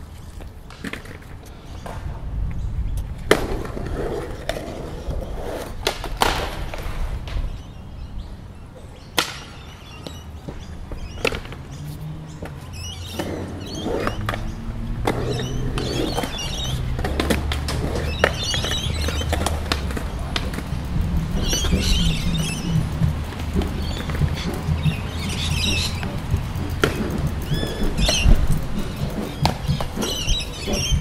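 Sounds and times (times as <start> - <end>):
birds chirping: 0.0 - 31.0
low rumble: 2.0 - 5.9, 11.8 - 31.0
sharp clicks and taps: 14.0 - 31.0.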